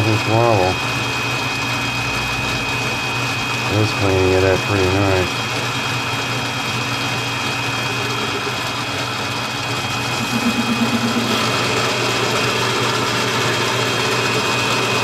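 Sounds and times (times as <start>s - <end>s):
lathe motor whine and hum: 0.0s - 15.0s
warbling buzz: 7.7s - 12.8s.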